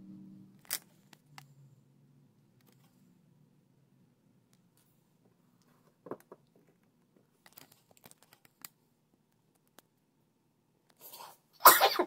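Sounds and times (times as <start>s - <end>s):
faint clicks of metal parts: 5.6s - 8.8s.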